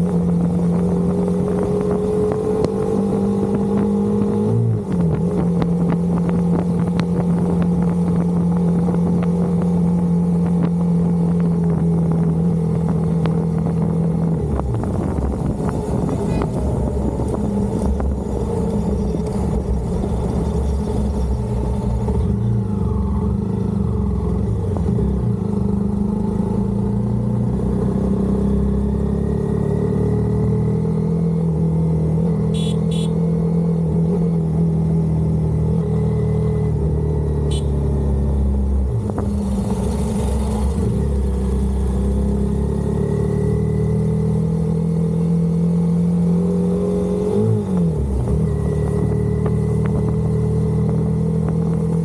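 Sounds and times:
motorcycle engine running: 32.5 - 33.2.

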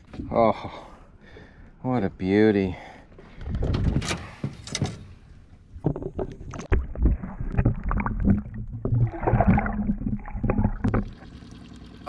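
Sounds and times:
water splashing and sloshing: 3.2 - 12.0.

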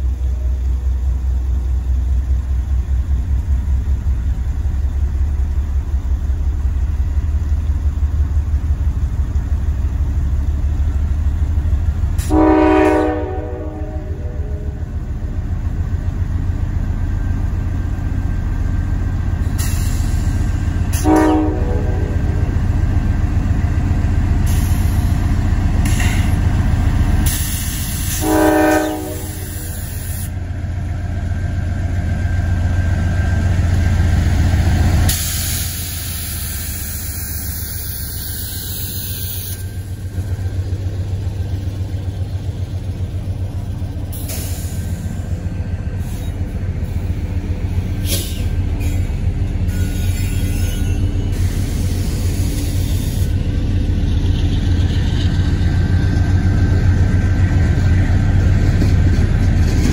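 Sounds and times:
train engine rumbling: 0.0 - 59.9
locomotive horn blasts: 12.2 - 14.8, 21.0 - 22.4, 28.1 - 29.7.

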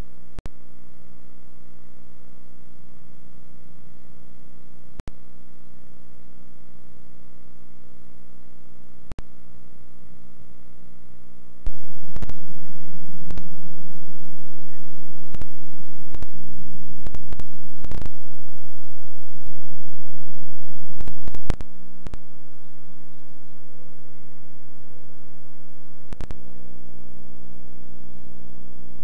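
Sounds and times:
electrical mains hum: 0.0 - 29.0
static clicks: 11.1 - 29.0.

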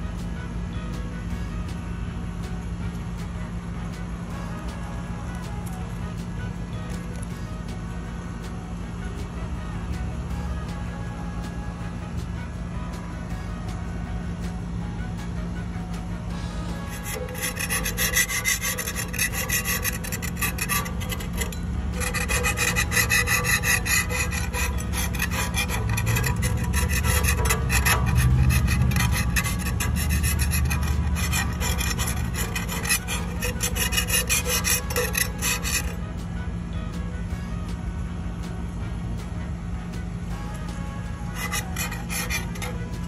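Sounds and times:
metal scraper scraping paint: 16.7 - 36.1, 40.4 - 43.0.

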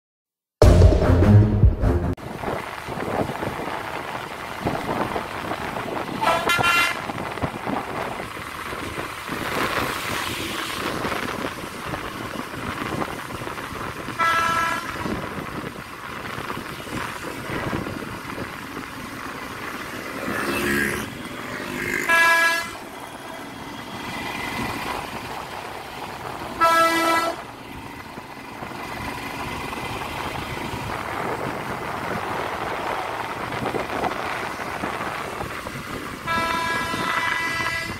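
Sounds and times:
wind noise: 2.2 - 20.6, 27.7 - 37.9
motorcycle riding on wet road: 2.2 - 37.9
vehicle horn honking: 6.2 - 7.0, 14.2 - 15.0, 22.1 - 22.8, 26.6 - 27.4, 36.2 - 37.9.

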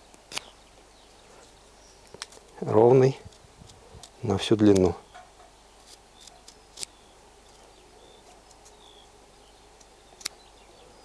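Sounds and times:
faint bird chirps: 0.3 - 11.0.

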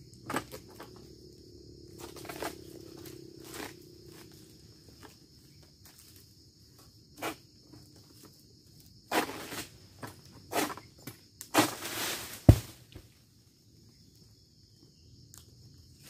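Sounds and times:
insect drone: 0.0 - 16.0
sickle scraping palm fronds: 9.1 - 9.8, 11.5 - 12.8.

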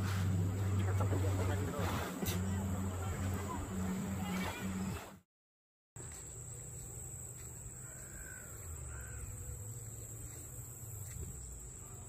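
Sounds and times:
bird calling: 7.8 - 9.6.

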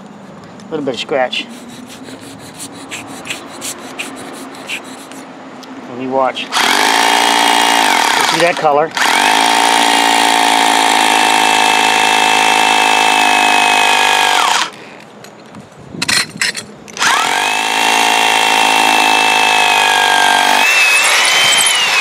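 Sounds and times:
electric drill boring into concrete: 6.6 - 14.7, 17.0 - 22.0.

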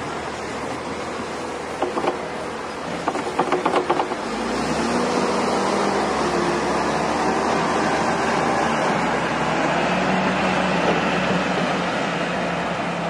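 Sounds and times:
tractor engine running: 0.0 - 4.7
snow plow blade pushing snow: 0.0 - 13.0
sharp clacks and rattles: 1.8 - 2.3, 3.0 - 4.2.

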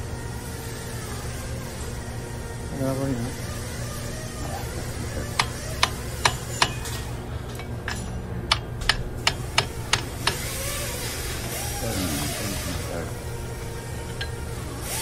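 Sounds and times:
steady low hum: 0.0 - 15.0
screwdriver clicking on metal: 7.9 - 10.6.

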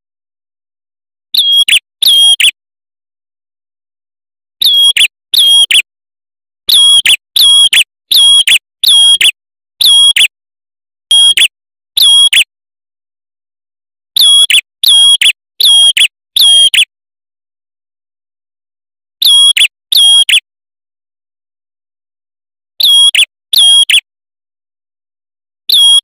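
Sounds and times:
bird singing whistled notes: 1.4 - 2.6, 4.6 - 5.9, 6.7 - 10.3, 11.1 - 12.5, 14.2 - 16.9, 19.2 - 20.5, 22.8 - 24.1, 25.7 - 26.0.

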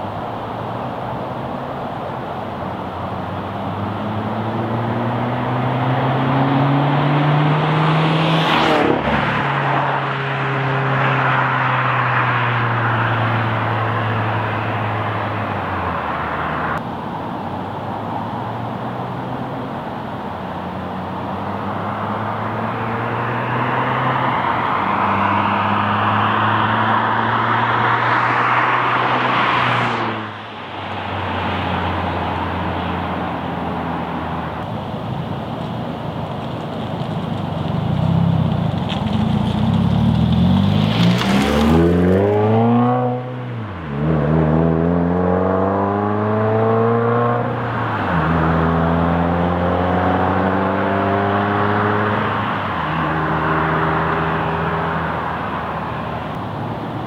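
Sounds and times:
car driving past: 3.4 - 16.8, 20.5 - 34.9, 37.8 - 56.6.

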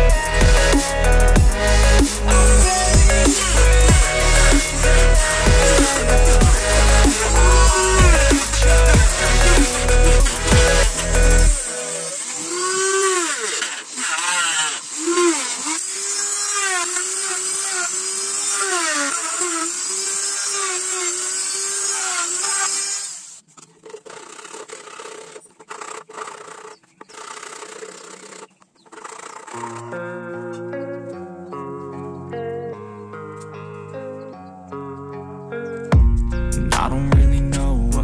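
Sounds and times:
sanding block scraping: 0.0 - 29.8
rotary grinder whining: 0.0 - 30.1.

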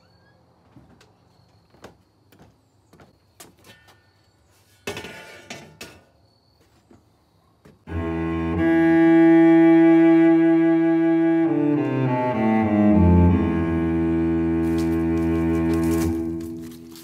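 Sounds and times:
footsteps on wooden deck: 0.5 - 4.0
metal grill lid clattering: 4.8 - 6.1
cello music: 7.9 - 17.0.

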